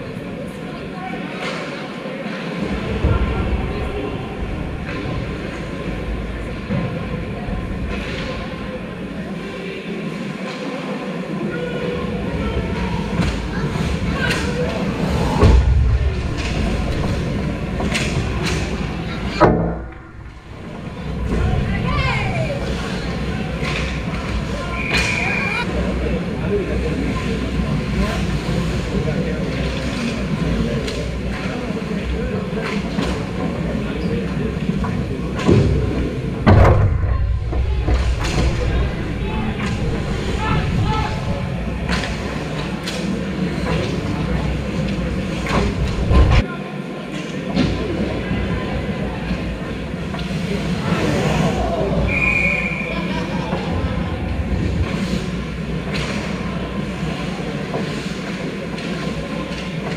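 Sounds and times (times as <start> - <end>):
low rumble of ice rink: 0.0 - 59.9
arena rumble: 12.6 - 28.8
skates and sticks on ice: 53.5 - 59.9.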